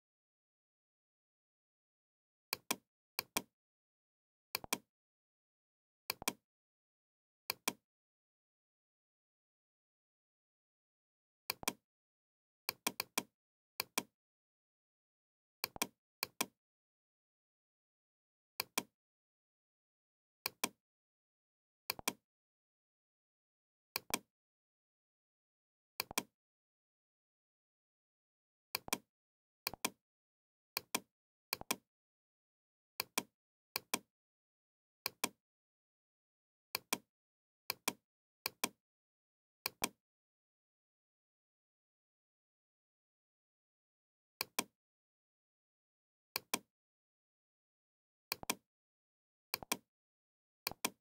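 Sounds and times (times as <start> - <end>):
computer mouse button clicking: 48.3 - 48.6, 50.7 - 51.0.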